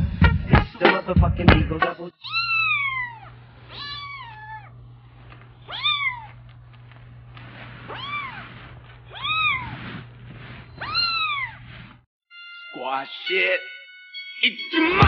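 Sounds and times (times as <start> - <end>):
kitten meowing: 2.2 - 4.8, 5.6 - 6.5, 7.9 - 9.9, 10.8 - 11.6.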